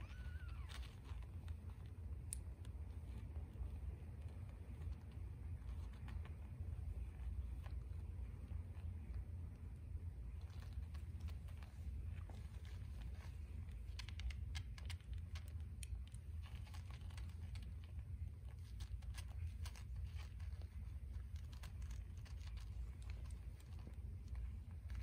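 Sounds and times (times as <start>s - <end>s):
kittens suckling clicks and smacks: 0.0s - 25.0s
steady low rumble: 0.0s - 25.0s.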